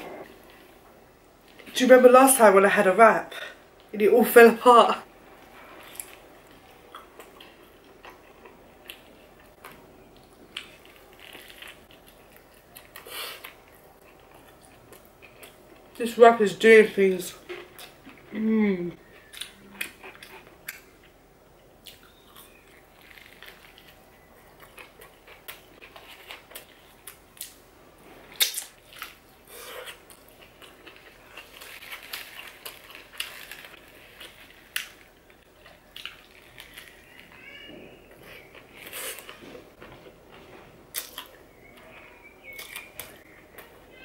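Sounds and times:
foil and paper wrapper rustling: 31.4s - 35.1s
chewing with mouth clicks: 38.2s - 43.8s.

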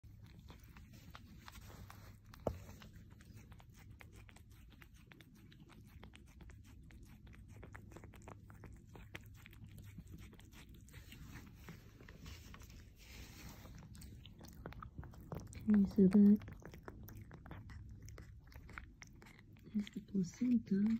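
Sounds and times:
cat chewing wetly: 0.0s - 20.9s.

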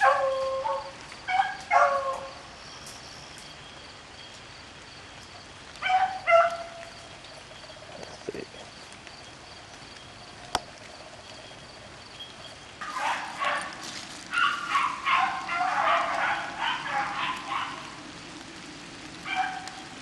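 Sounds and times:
beagle baying and barking: 0.0s - 2.3s, 5.8s - 6.8s, 12.8s - 18.0s, 19.2s - 19.9s.

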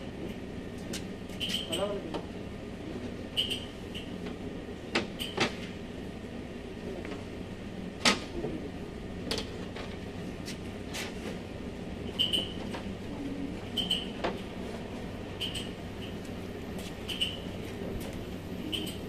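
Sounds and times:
steady low hum: 0.0s - 19.0s
short high squeaks: 1.4s - 1.8s, 3.4s - 4.1s, 17.0s - 17.5s.

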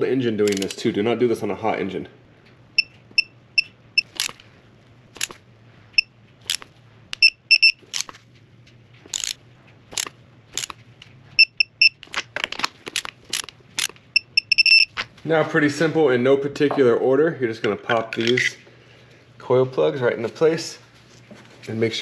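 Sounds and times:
high-pitched torque wrench beeps: 7.2s - 7.8s, 11.4s - 12.0s, 14.2s - 14.9s
wrench ratcheting clicks: 9.1s - 9.4s.

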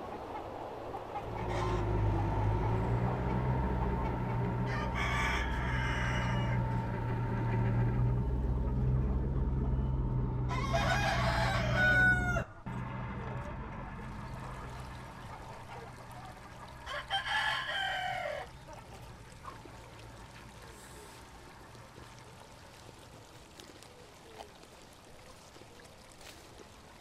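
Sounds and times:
tractor engine drone: 0.0s - 22.5s
cockerel crowing: 1.3s - 2.6s, 3.8s - 8.0s, 10.4s - 12.7s, 16.8s - 18.6s.

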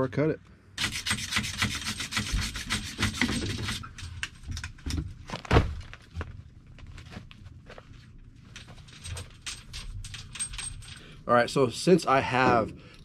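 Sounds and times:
sanding copper pipe by hand: 0.8s - 3.9s.

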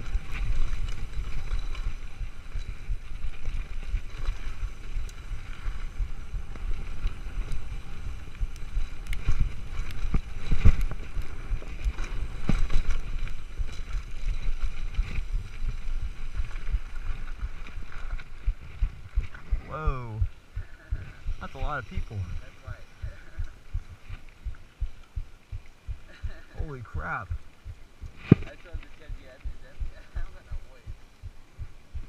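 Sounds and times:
bike rattling over rocks: 0.0s - 19.6s
wind buffeting microphone: 0.0s - 32.0s.

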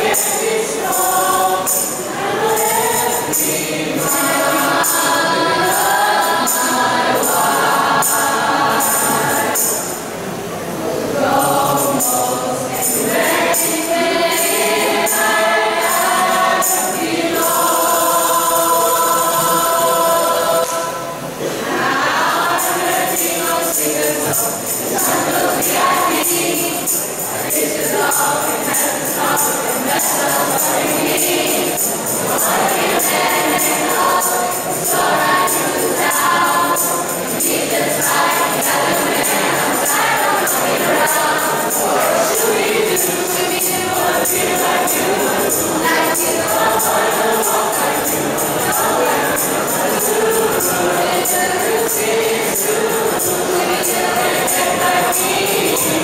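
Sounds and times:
choir singing in harmony: 0.0s - 56.0s
tambourine jingling: 0.0s - 56.0s.

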